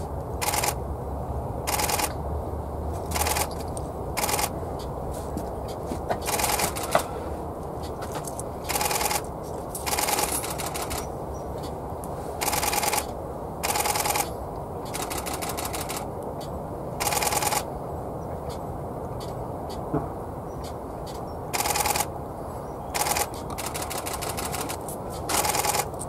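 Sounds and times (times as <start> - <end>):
low background noise: 0.0 - 26.0
camera shutters clicking rapidly: 0.4 - 0.8, 1.7 - 2.2, 3.1 - 3.6, 4.2 - 4.5, 6.2 - 7.0, 8.7 - 11.1, 12.4 - 14.3, 14.9 - 16.1, 17.0 - 17.7, 21.5 - 22.1, 23.0 - 26.0.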